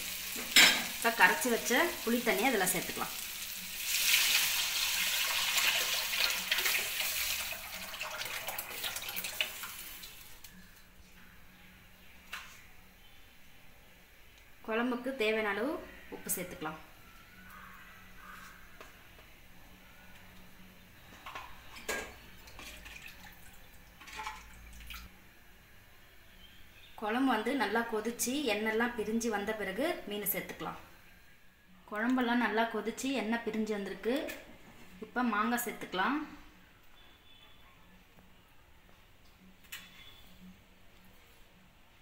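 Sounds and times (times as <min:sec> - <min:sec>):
liquid pouring into a pan: 0:03.5 - 0:10.3.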